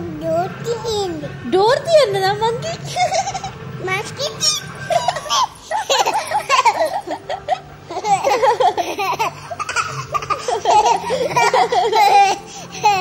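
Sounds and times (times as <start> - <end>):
toddler giggling: 2.9 - 3.6, 4.5 - 13.0.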